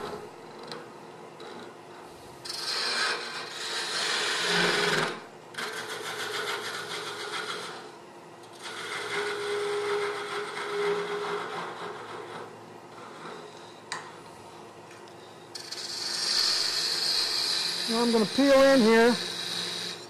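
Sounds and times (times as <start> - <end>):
chisel cutting wood on a lathe: 2.4 - 7.9, 8.5 - 13.6, 15.6 - 20.0.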